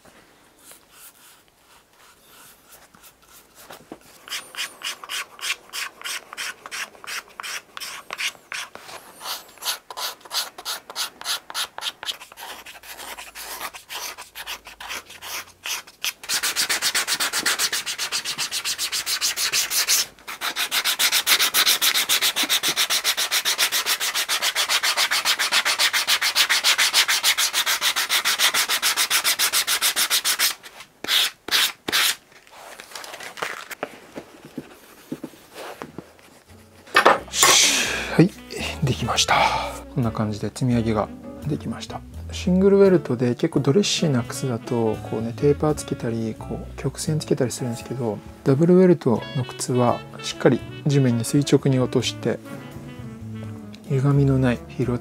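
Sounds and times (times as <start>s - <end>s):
sanding block scraping heel: 2.0s - 32.2s.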